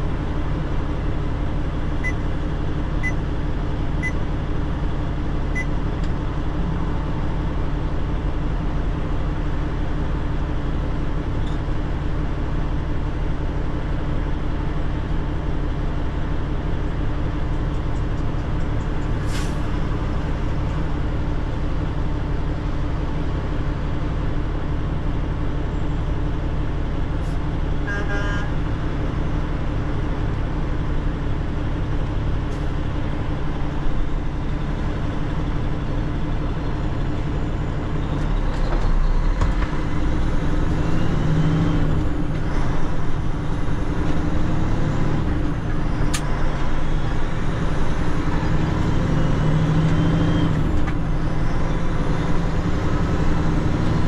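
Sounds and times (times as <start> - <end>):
truck engine drone: 0.0 - 54.0.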